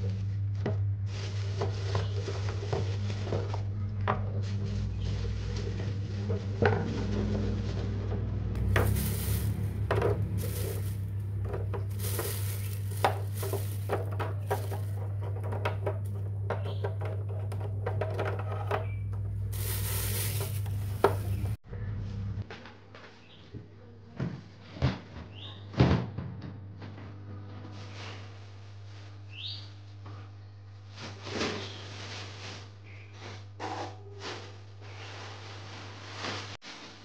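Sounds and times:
plastic bag crinkling: 8.6s - 16.3s, 19.5s - 21.6s.

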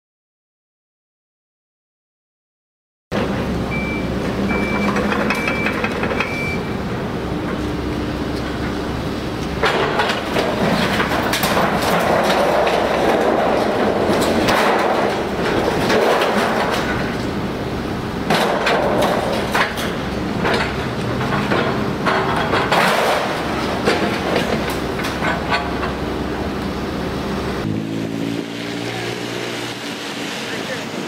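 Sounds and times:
excavator engines running: 3.1s - 31.0s
short high beeps: 3.7s - 6.7s
demolition debris crunching: 9.5s - 17.6s.

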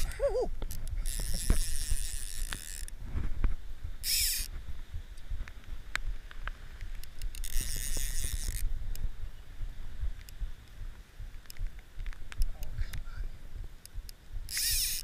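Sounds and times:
fly reel clicker ratcheting: 0.0s - 3.0s, 4.0s - 4.5s, 6.9s - 9.1s, 13.8s - 15.0s
light clicks: 10.2s - 10.8s, 11.4s - 13.1s.

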